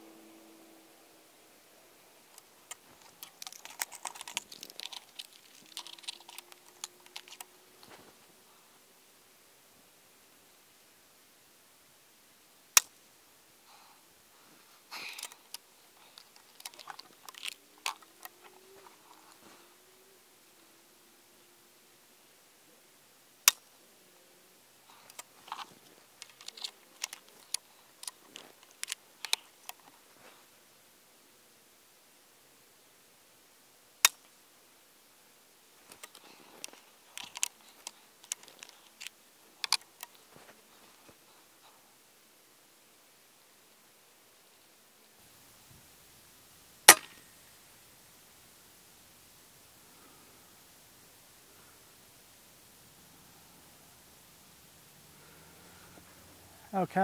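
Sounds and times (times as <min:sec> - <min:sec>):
faint steady hum: 0:00.0 - 0:57.0
air rifle action clicks: 0:02.3 - 0:07.5.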